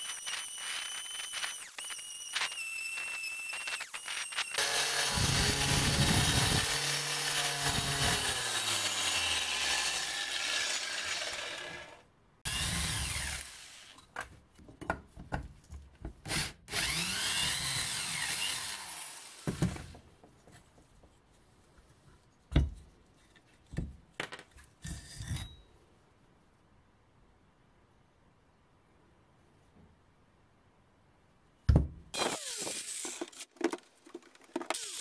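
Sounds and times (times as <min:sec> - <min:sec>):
angle grinder on steel: 0:00.0 - 0:14.0, 0:16.7 - 0:19.4, 0:34.7 - 0:35.0
cordless drill spinning against steel: 0:00.0 - 0:14.0, 0:16.3 - 0:19.5, 0:34.7 - 0:35.0.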